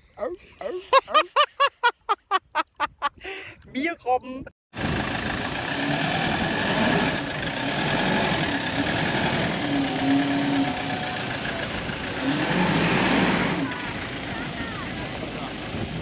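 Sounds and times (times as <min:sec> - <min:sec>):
motor running steadily: 0:04.8 - 0:16.0.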